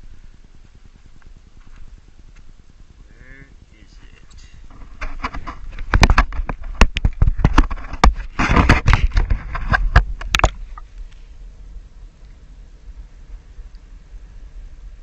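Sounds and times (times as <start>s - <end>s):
scraping and rubbing: 4.4s - 10.9s
camera handling knocks and bumps: 4.7s - 10.6s.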